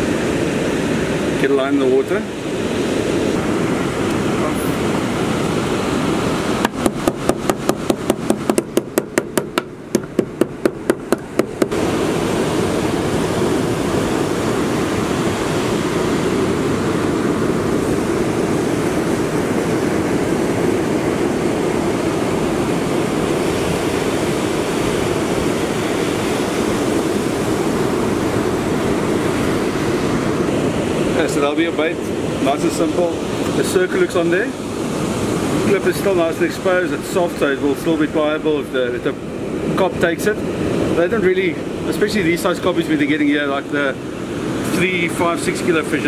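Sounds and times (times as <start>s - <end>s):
surf: 0.0s - 46.0s
wind: 0.0s - 46.0s
mallet striking bait on board: 6.6s - 11.8s.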